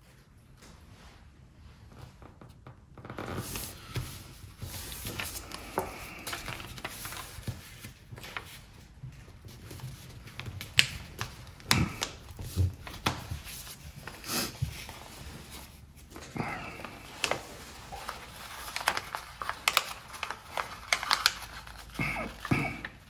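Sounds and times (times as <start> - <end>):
paper rustling and crinkling: 3.2 - 23.0
paper folds snapping: 3.4 - 8.6, 9.5 - 15.1, 16.2 - 23.0.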